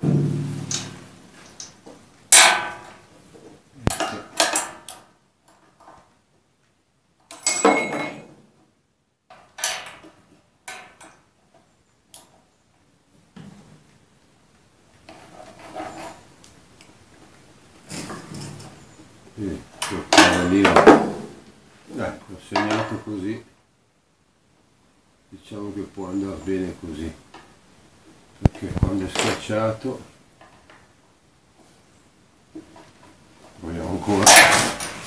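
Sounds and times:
metal clanks and knocks: 0.0 - 3.0, 7.4 - 8.4, 34.1 - 35.0
rustling: 0.0 - 3.6, 32.6 - 35.0.

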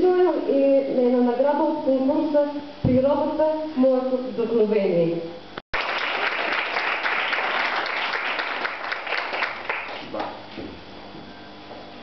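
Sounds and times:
audience applauding: 5.8 - 10.4.

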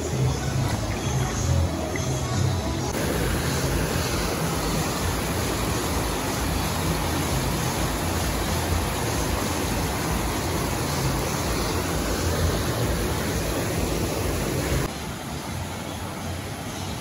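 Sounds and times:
water rushing over a weir: 2.8 - 17.0.

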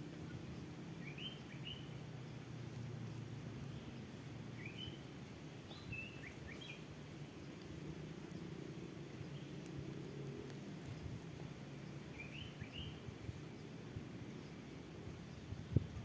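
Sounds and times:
small bird chirping: 1.0 - 2.0, 11.8 - 13.7.

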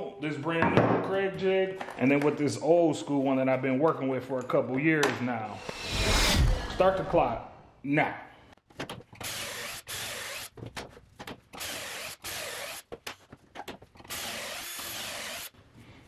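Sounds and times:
cordless drill boring into wood: 9.2 - 10.5, 11.6 - 12.8, 14.1 - 15.5.

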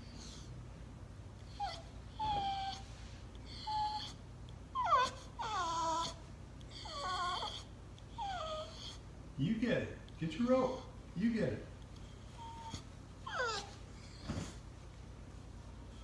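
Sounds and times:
dog whining: 1.4 - 9.1, 12.0 - 14.7.

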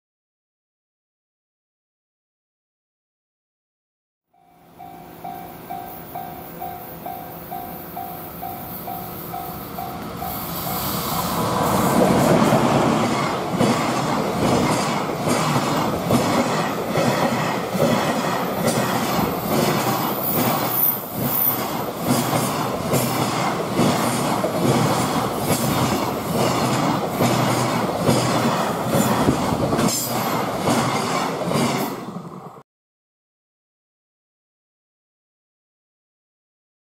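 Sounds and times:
electric locomotive passing: 4.3 - 32.6
train wheels clattering on rails: 7.5 - 32.2
wheel squeal: 19.5 - 21.8.

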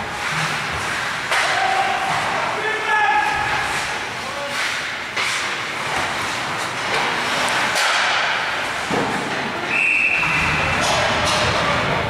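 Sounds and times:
echoing arena noise: 0.0 - 12.0
hockey sticks and puck knocking: 0.2 - 2.6, 3.2 - 9.7, 10.8 - 11.8
referee's whistle: 9.7 - 10.8.

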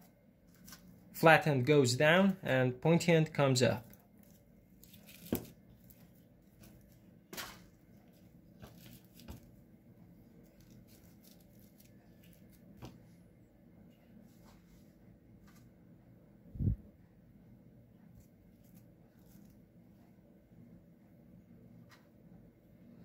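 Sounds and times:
potting soil rustling: 3.6 - 9.6, 10.3 - 13.0.

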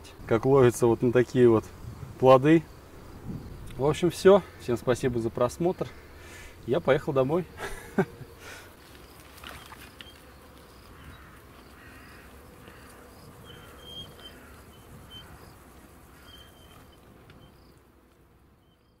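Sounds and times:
insects buzzing: 0.0 - 19.0
bird calling: 7.6 - 17.8.

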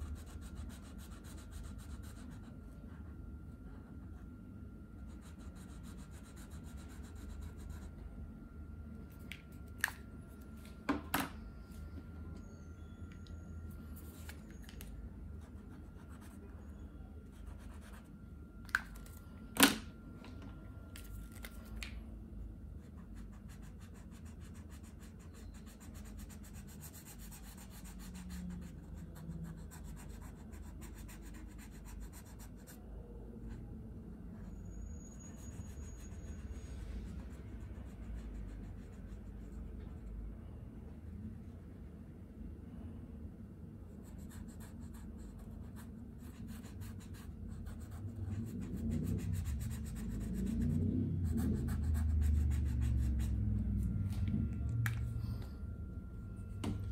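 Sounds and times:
marker scratching on paper: 22.8 - 32.8, 35.2 - 36.6, 44.0 - 53.4.

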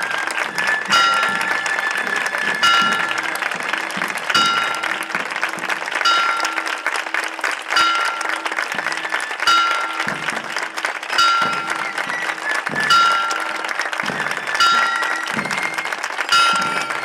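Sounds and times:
crowd applauding: 0.0 - 17.0
struck ringing tone: 14.6 - 15.3, 16.3 - 17.0.

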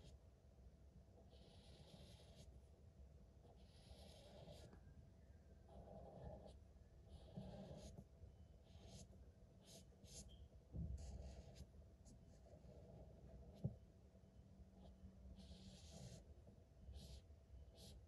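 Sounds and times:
marker scratching on paper: 1.3 - 2.5, 3.5 - 4.7, 5.7 - 8.0, 8.7 - 10.4, 11.0 - 13.7, 14.8 - 16.3, 16.9 - 18.0.

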